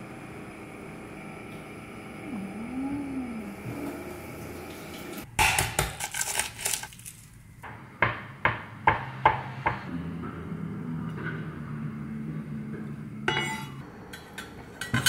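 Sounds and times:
low steady hum: 0.0 - 5.3.

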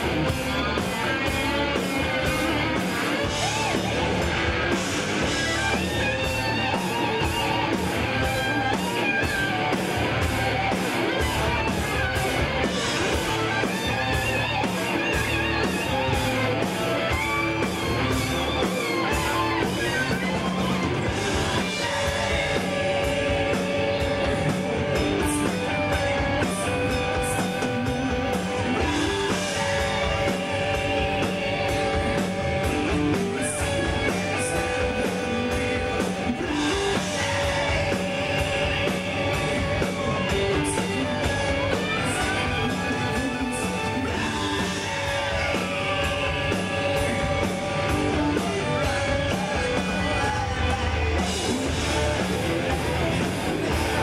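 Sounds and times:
rock band playing live: 0.0 - 54.0
person singing: 12.7 - 54.0.

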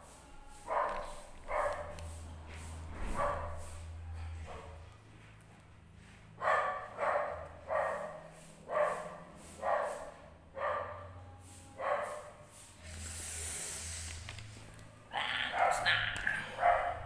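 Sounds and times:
dog barking: 0.7 - 2.0, 3.0 - 3.8, 6.4 - 11.2, 11.8 - 12.4, 15.4 - 17.0.

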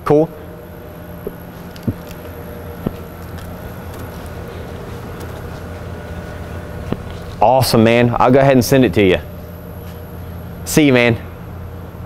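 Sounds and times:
low mechanical hum: 0.0 - 12.0
footsteps on concrete floor: 1.2 - 7.4, 9.8 - 10.1.

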